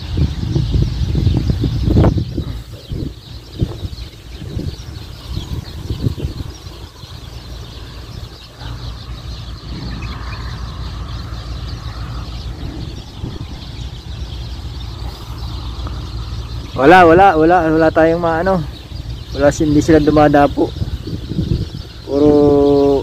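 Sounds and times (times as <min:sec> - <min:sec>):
wind buffeting microphone: 0:00.0 - 0:23.0
wind hissing through palm fronds: 0:00.0 - 0:23.0.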